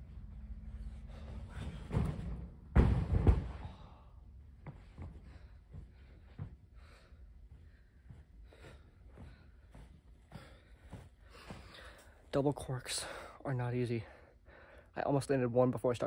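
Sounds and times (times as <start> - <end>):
body thudding onto floor: 1.7 - 3.7
bare feet running on carpeted floor: 4.4 - 12.3
footsteps: 4.6 - 12.2.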